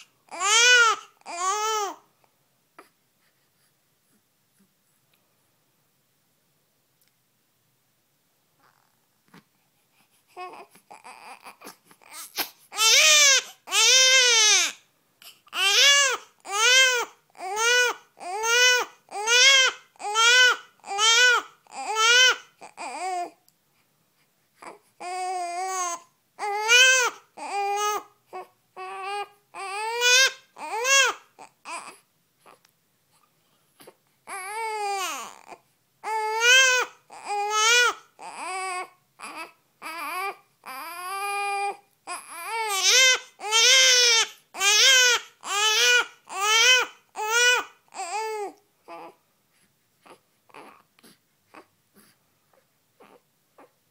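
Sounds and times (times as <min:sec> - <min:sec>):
baby crying: 0:00.0 - 0:02.1, 0:10.2 - 0:23.4, 0:24.6 - 0:32.6, 0:33.8 - 0:49.2, 0:50.0 - 0:50.9, 0:53.0 - 0:53.7.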